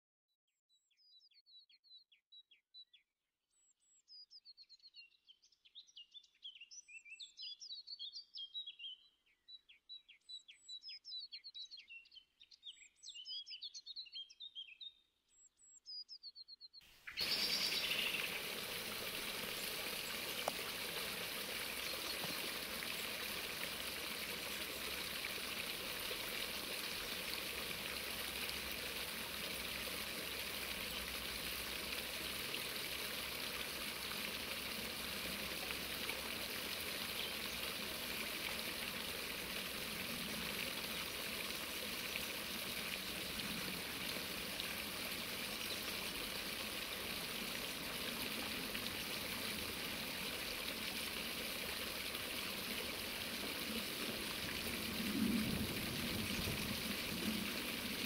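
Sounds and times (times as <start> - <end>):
water splashing into stone basins: 17.0 - 58.0.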